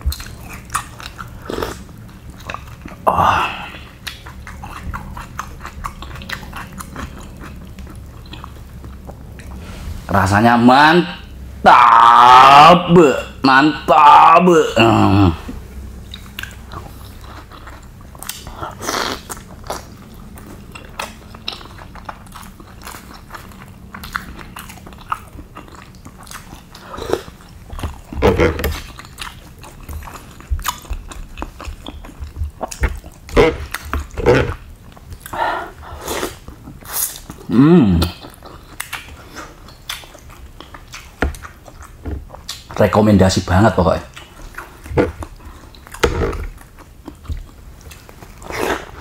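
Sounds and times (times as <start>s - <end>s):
chewing: 0.0s - 9.9s, 15.4s - 49.0s
short humming vocal sound: 11.6s - 15.7s, 37.4s - 38.2s.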